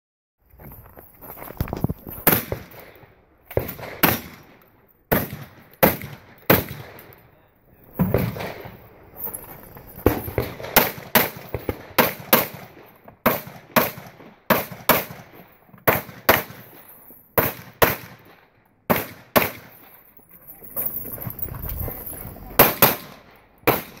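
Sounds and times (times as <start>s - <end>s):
pistol shots with echo: 3.6s - 7.1s, 10.4s - 16.8s, 17.4s - 19.8s, 22.6s - 24.0s.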